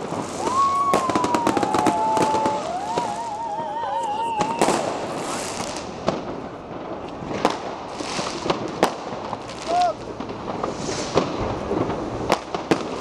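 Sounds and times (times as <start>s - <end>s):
firecrackers banging and crackling: 0.0s - 13.0s
whistling fireworks: 0.0s - 13.0s
loud firework bang: 4.3s - 13.0s.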